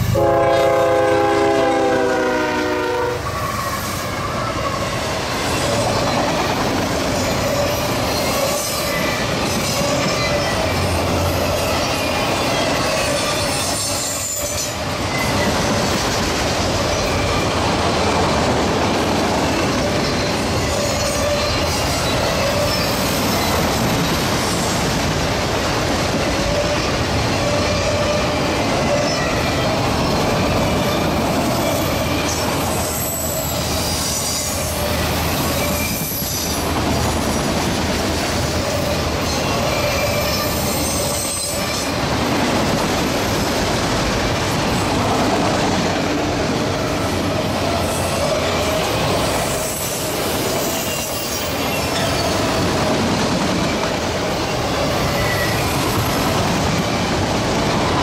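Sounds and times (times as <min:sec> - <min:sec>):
train wheels rumbling on rail: 0:00.0 - 0:58.0
wheel squeal: 0:19.4 - 0:24.7, 0:26.6 - 0:36.6, 0:39.2 - 0:42.0, 0:47.9 - 0:52.6, 0:54.9 - 0:56.1.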